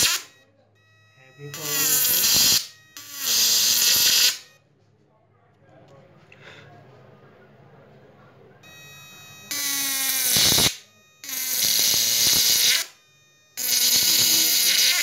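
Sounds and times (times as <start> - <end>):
buzzing electric arcs: 0.0 - 0.3, 1.5 - 4.4, 9.5 - 13.0, 13.6 - 15.0.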